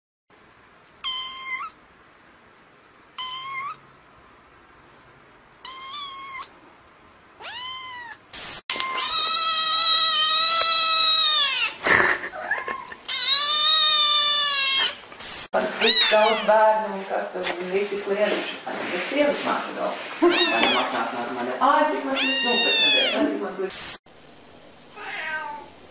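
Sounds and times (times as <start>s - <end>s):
cat meowing: 1.0s - 1.8s, 3.2s - 3.8s, 5.6s - 6.5s, 7.4s - 11.8s, 12.4s - 15.0s, 15.8s - 16.5s, 20.2s - 21.0s, 22.2s - 23.2s, 25.0s - 25.7s.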